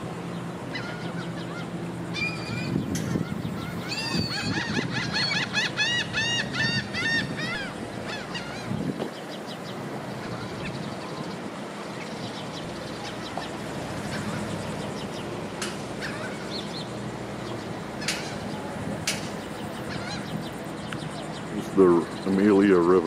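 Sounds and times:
outdoor background noise: 0.0s - 23.0s
gull calling: 0.7s - 9.0s, 12.9s - 17.0s, 17.8s - 21.3s.

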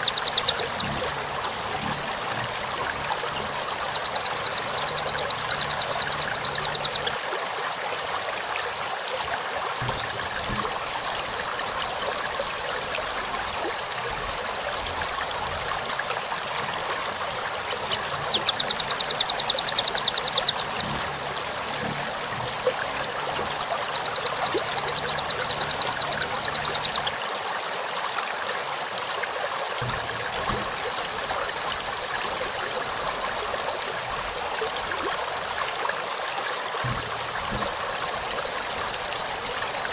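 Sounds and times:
nuthatch song trills: 0.0s - 7.1s, 9.8s - 27.2s, 29.8s - 39.9s
steady hiss: 29.8s - 39.9s.

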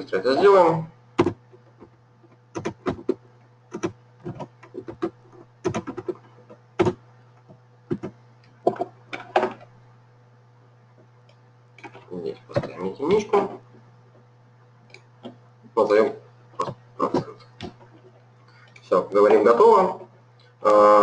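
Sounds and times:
low electrical hum: 0.0s - 21.0s
keystrokes: 2.5s - 6.2s.

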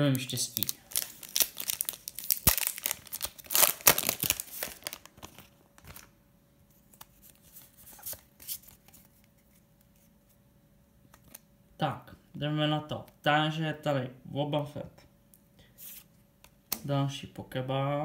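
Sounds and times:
foil wrapper tearing and crinkling: 0.6s - 6.1s.

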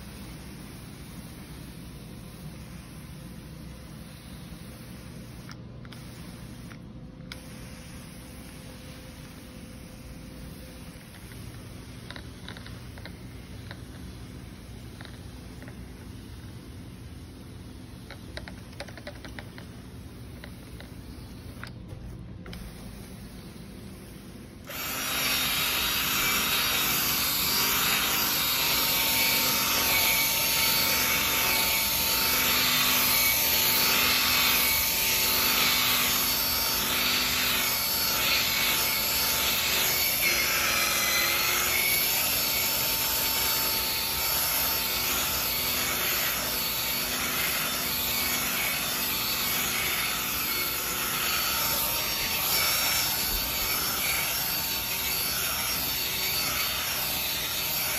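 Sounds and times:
drill motor whirring: 24.6s - 57.9s.

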